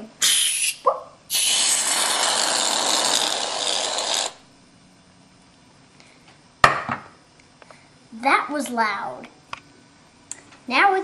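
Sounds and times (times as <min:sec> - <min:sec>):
aerosol can hissing: 0:00.2 - 0:04.4.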